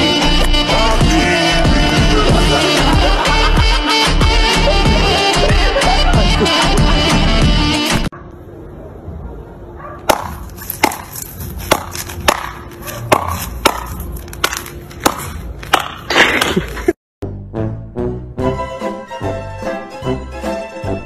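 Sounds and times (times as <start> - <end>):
plucked-string comedy music: 0.0 - 8.1, 17.2 - 21.0
rackets hitting shuttlecock: 10.1 - 16.6.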